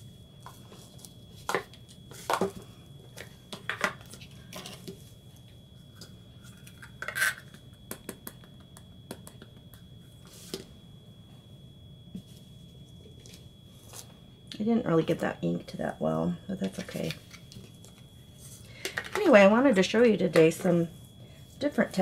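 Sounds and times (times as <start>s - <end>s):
faint high whine: 0.0s - 22.0s.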